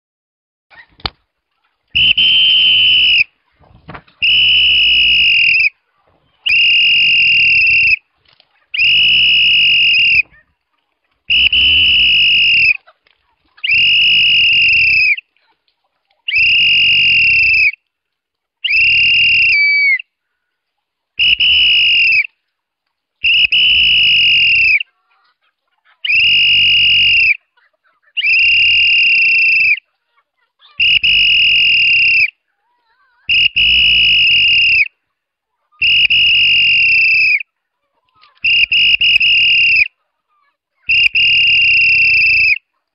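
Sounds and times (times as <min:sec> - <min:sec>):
high-pitched whistle blasts: 0:02.0 - 0:03.3, 0:04.2 - 0:05.7, 0:11.3 - 0:12.8, 0:21.2 - 0:22.3, 0:30.8 - 0:32.3, 0:33.3 - 0:34.9, 0:35.8 - 0:37.4, 0:38.4 - 0:39.9, 0:40.9 - 0:42.6.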